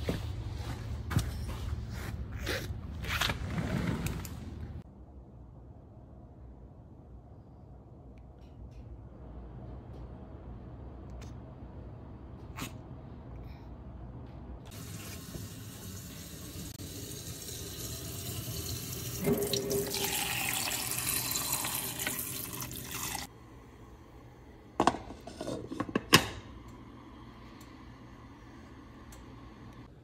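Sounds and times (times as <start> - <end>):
water pouring into a pot: 16.8 - 23.3.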